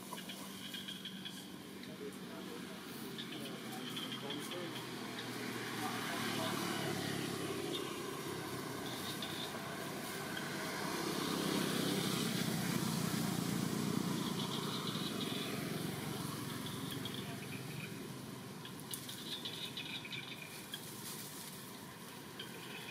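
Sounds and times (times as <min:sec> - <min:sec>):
low rumble of traffic: 0:00.0 - 0:22.9.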